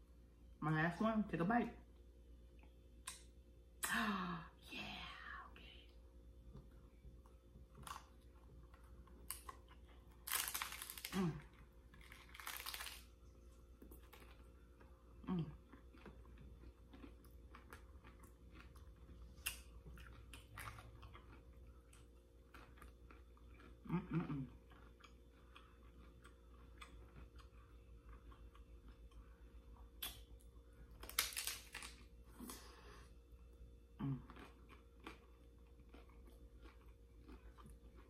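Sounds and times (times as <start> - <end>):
crunchy taco chewing: 6.4 - 32.8, 33.9 - 38.0
person humming mm: 34.0 - 34.3.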